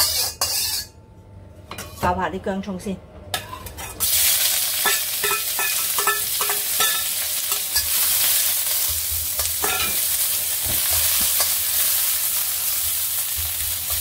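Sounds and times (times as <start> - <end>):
metal spatula scraping a wok: 0.0 - 0.9
food sizzling in hot oil: 4.0 - 14.0.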